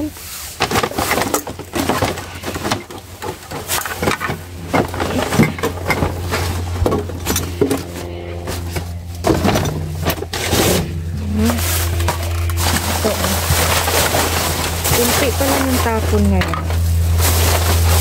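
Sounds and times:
low hum: 0.0s - 18.0s
plastic bags and bottles rustling: 0.0s - 18.0s
metal grabber knocking in dumpster: 0.6s - 12.9s.

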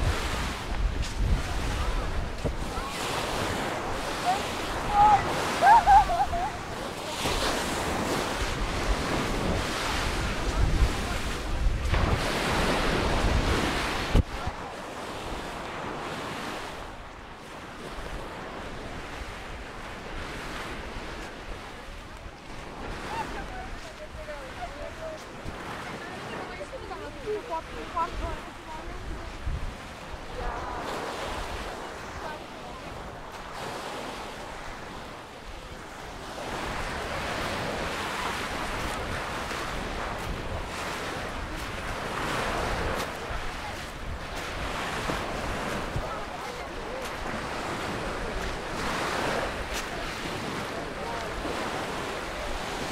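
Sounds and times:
waves washing onto beach: 0.0s - 52.9s
wind buffeting microphone: 0.0s - 52.9s.

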